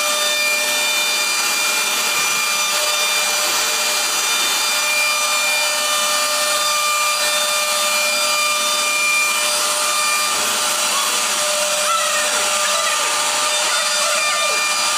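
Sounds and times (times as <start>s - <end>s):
wood being worked: 0.0s - 14.9s
woodworking machine whining: 0.0s - 14.9s.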